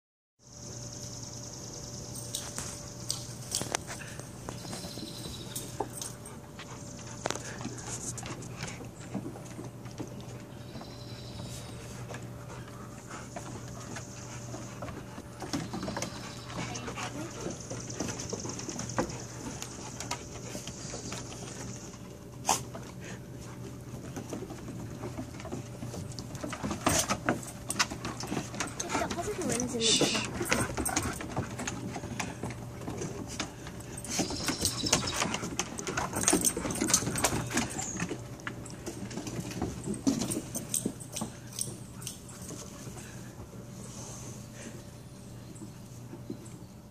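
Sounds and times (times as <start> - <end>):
paws scrabbling on wooden boards: 2.2 - 46.9
dog claws clicking on wooden deck: 11.8 - 43.2.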